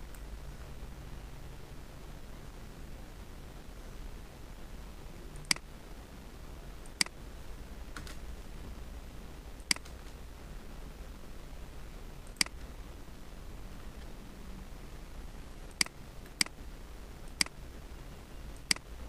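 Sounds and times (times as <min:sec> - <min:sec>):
steady low hum: 0:00.0 - 0:19.0
computer mouse clicks: 0:05.3 - 0:05.7, 0:06.8 - 0:07.2, 0:09.6 - 0:10.1, 0:12.2 - 0:12.7, 0:15.7 - 0:16.6, 0:17.3 - 0:17.6, 0:18.6 - 0:18.9
keystrokes: 0:12.3 - 0:12.6.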